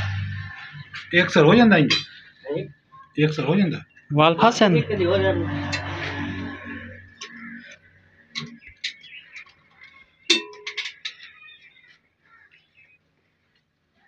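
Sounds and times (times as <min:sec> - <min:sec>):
faint bird chirps: 0:00.3 - 0:04.2, 0:11.0 - 0:13.0
oil cans clinking and knocking: 0:08.4 - 0:11.8.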